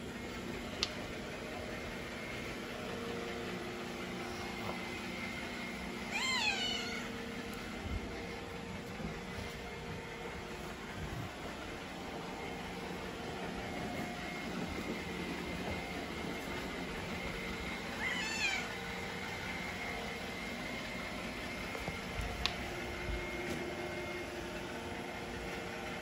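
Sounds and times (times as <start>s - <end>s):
small click: 0.8s - 1.0s
cat meowing: 6.1s - 7.2s, 18.0s - 18.8s.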